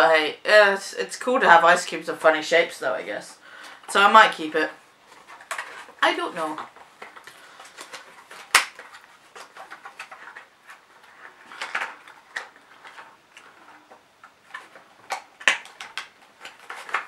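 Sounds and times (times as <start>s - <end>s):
cardboard and silicone rustling: 4.9s - 17.0s.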